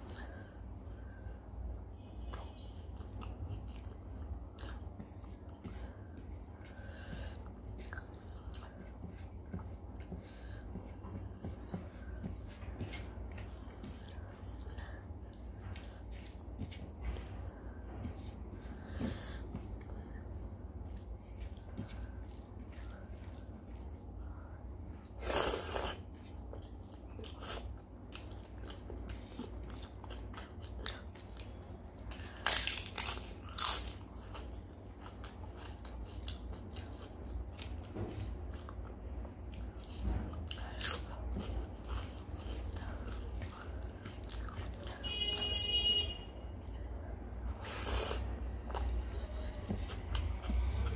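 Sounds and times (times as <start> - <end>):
chewing and biting: 25.3 - 45.0, 47.9 - 50.9.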